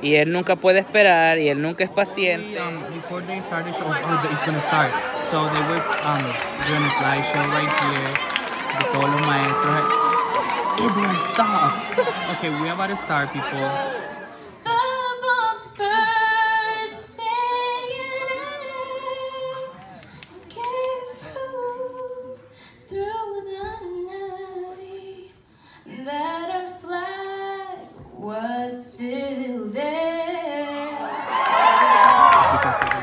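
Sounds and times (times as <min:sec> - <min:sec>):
woman singing unaccompanied: 0:14.6 - 0:19.8, 0:20.5 - 0:31.1.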